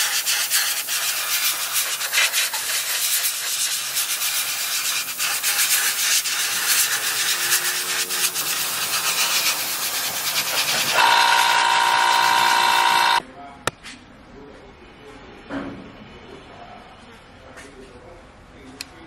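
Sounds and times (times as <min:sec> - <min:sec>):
spray gun hissing: 0:00.0 - 0:13.2.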